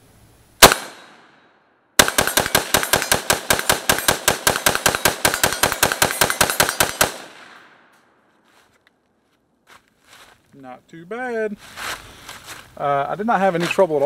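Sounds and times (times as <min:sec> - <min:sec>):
rapid rifle shots: 0:00.6 - 0:01.2, 0:02.0 - 0:07.7.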